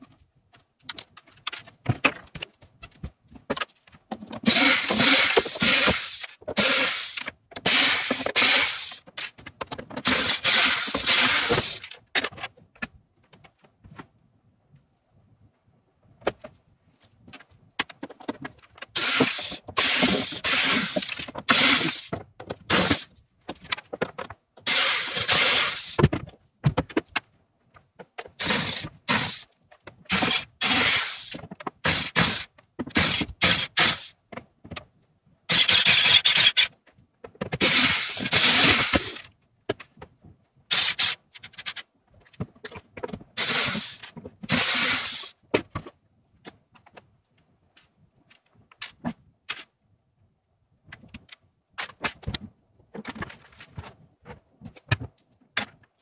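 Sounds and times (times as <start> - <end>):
boards scraping and knocking: 0.0 - 14.1, 17.2 - 34.9, 35.5 - 47.2, 50.9 - 56.0
cordless drill backing out screws: 19.0 - 22.1, 24.7 - 26.0, 37.6 - 39.2.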